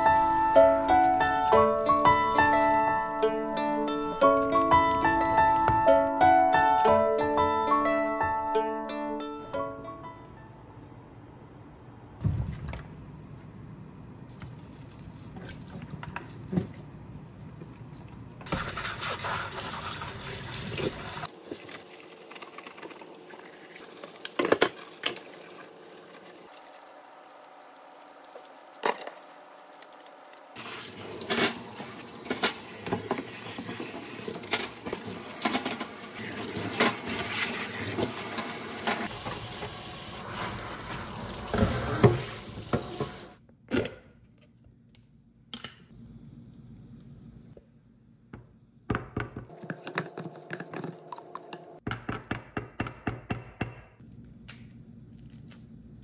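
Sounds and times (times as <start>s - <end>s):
water running: 17.9s - 43.4s.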